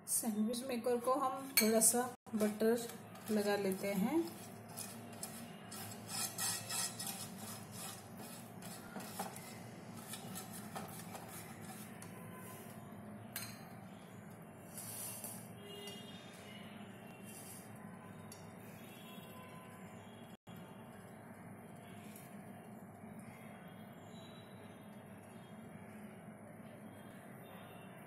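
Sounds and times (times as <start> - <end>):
pastry brush scratchy strokes: 3.1 - 12.6.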